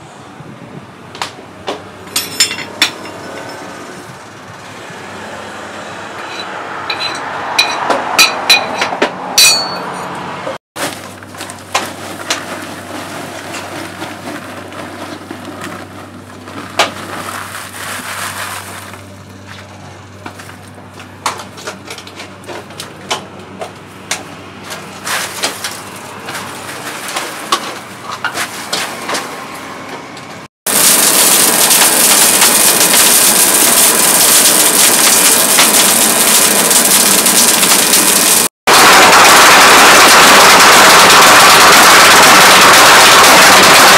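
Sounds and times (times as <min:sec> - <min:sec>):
hammer ringing on anvil: 0:06.3 - 0:10.1
forge fire rushing and crackling: 0:30.7 - 0:43.9.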